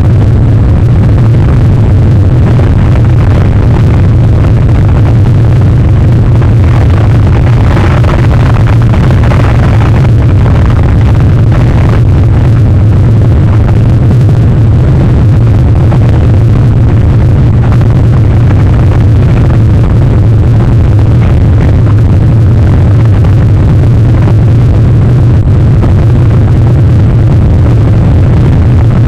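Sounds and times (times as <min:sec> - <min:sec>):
storm wind buffeting microphone: 0:00.0 - 0:29.0.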